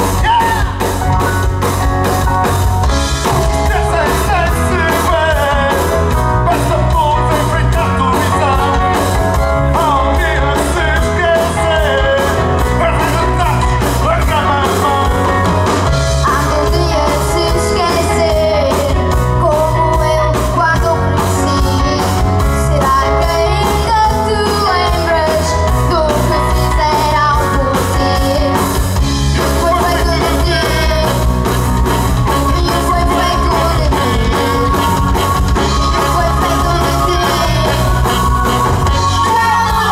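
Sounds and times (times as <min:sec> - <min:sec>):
steady beat: 0:00.0 - 0:16.8
electric bass: 0:00.0 - 0:39.9
electric guitars: 0:00.0 - 0:39.9
keyboard: 0:00.0 - 0:39.9
person singing: 0:03.2 - 0:31.4, 0:32.2 - 0:39.9.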